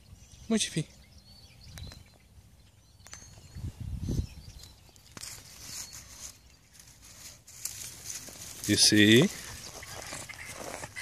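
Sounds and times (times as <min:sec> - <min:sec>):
faint bird chirps: 0:00.0 - 0:07.3
footsteps through dry grass: 0:04.5 - 0:11.0.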